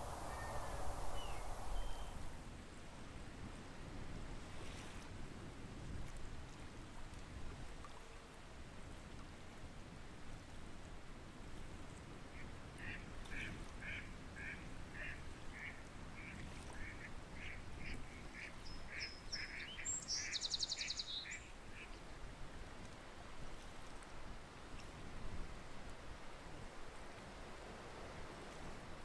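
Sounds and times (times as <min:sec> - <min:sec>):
low background noise: 0:00.0 - 0:03.4.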